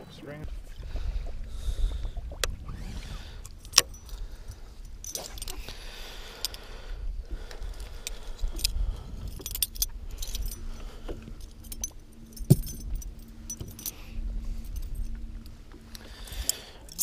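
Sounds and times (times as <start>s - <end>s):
metal clinks and jingles: 8.5s - 10.8s, 11.4s - 15.2s, 16.4s - 17.0s.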